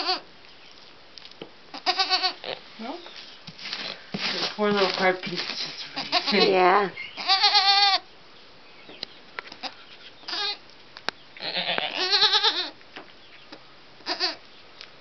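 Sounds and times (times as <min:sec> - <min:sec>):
goat bleating: 0:00.0 - 0:00.3, 0:01.7 - 0:02.6, 0:05.9 - 0:08.0, 0:09.6 - 0:10.6, 0:11.4 - 0:12.8, 0:14.0 - 0:14.4.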